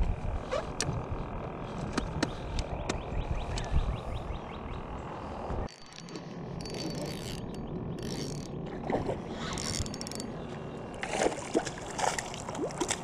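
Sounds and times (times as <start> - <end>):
wind noise: 0.0 - 5.8
knocks and rustles of fishing reel: 5.7 - 10.4.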